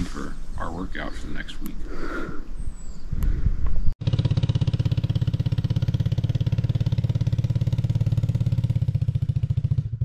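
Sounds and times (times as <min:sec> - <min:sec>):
single-cylinder engine running: 0:04.0 - 0:10.0.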